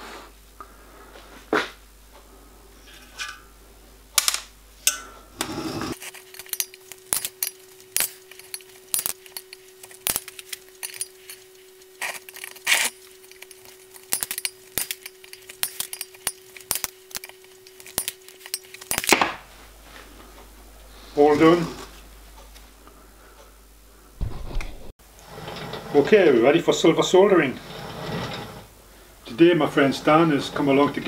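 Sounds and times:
faint steady hum: 0:00.0 - 0:31.0
metal ends clinking on copper: 0:06.0 - 0:19.2.

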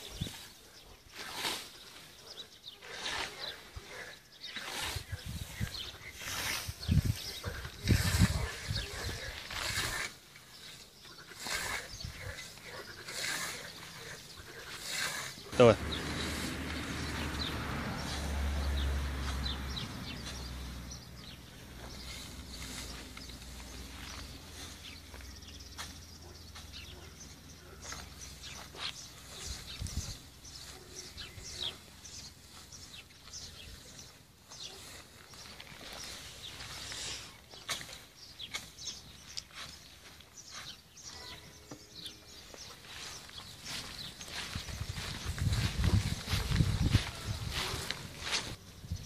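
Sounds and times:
cut grass rustling: 0:00.0 - 0:48.7
birds chirping: 0:00.0 - 0:49.0
low rumble: 0:15.8 - 0:21.2.

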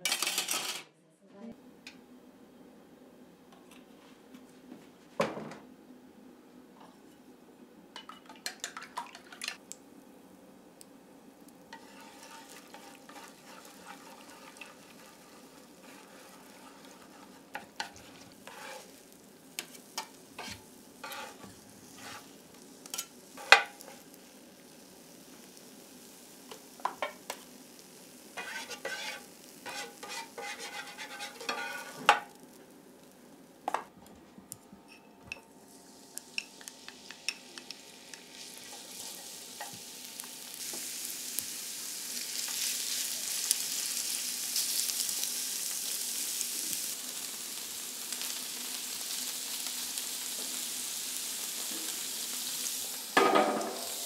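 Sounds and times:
metal turners scraping a pan: 0:00.0 - 0:00.8, 0:11.7 - 0:24.1, 0:28.3 - 0:32.6
egg sizzling in oil: 0:08.0 - 0:33.7, 0:35.3 - 0:54.0.

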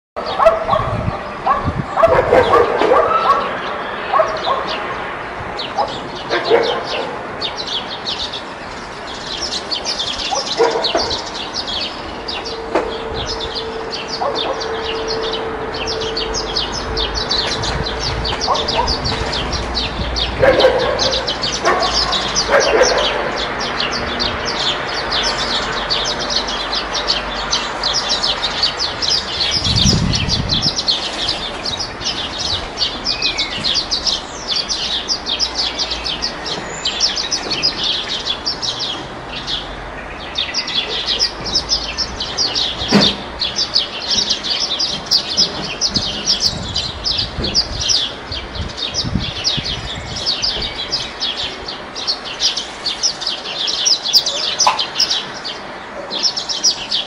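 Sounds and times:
high-pitched bird chirping: 0:09.2 - 0:39.0.

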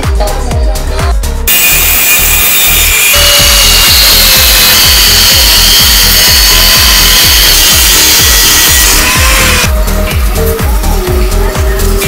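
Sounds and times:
music with fast beat: 0:00.0 - 0:12.0
power tool hissing on metal: 0:01.5 - 0:09.7.

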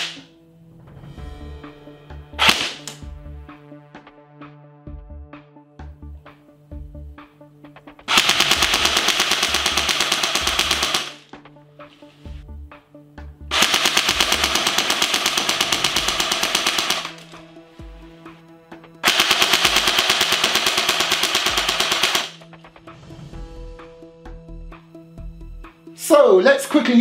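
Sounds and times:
airsoft gun full-auto bursts: 0:02.4 - 0:02.8, 0:08.1 - 0:11.2, 0:13.5 - 0:17.4, 0:19.0 - 0:22.4.

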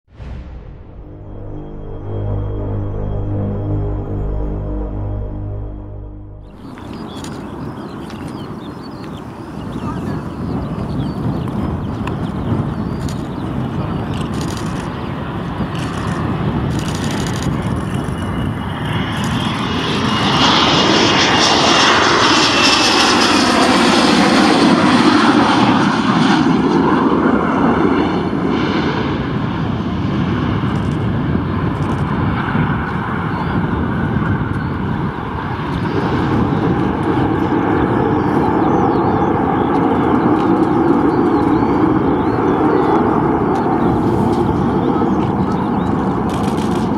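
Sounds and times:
high jet whine falling in pitch: 0:00.1 - 0:08.0, 0:18.5 - 0:27.0
jet engines on landing approach: 0:00.1 - 0:46.9.

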